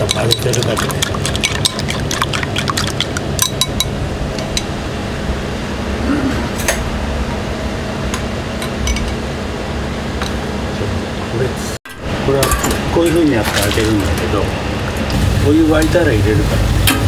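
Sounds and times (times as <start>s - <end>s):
dishes and glassware clinking: 0.0s - 2.0s, 8.8s - 9.2s, 12.4s - 14.2s
steady low hum: 0.0s - 17.0s.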